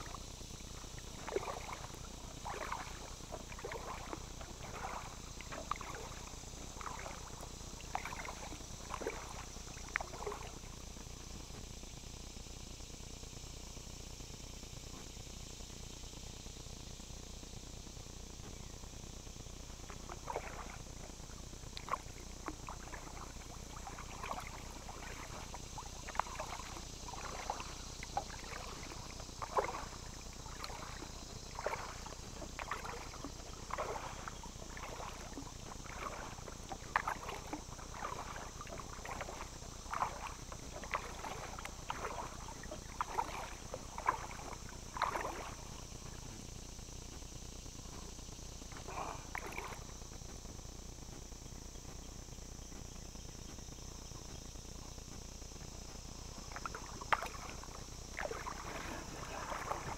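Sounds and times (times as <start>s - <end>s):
paddle splashing into water: 1.0s - 10.6s, 19.9s - 21.1s, 21.8s - 46.2s, 48.8s - 49.9s, 56.4s - 59.9s.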